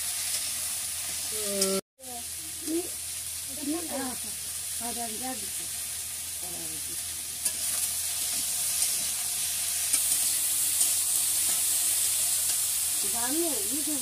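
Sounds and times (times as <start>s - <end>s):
food sizzling in hot oil: 0.0s - 14.0s
spatula scraping and knocking pan: 7.4s - 12.7s.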